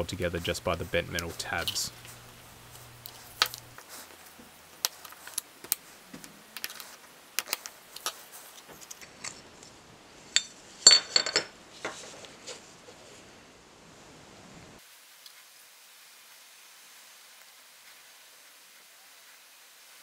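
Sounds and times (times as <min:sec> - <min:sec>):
screwdriver clicking and scraping metal: 0:01.1 - 0:03.8.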